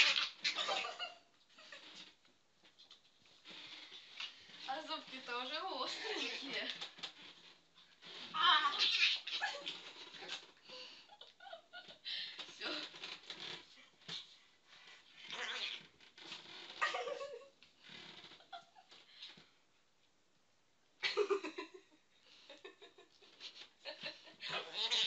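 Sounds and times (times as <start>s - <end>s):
small dog play growling: 15.2s - 15.8s.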